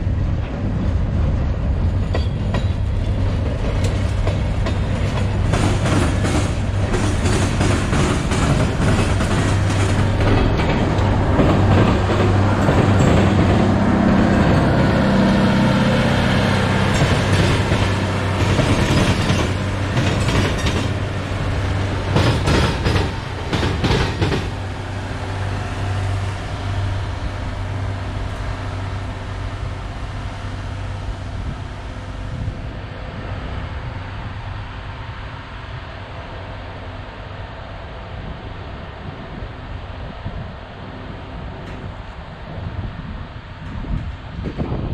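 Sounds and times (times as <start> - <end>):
train engine drone: 0.0 - 44.9
train wheel clacks: 1.8 - 14.7, 16.6 - 25.6.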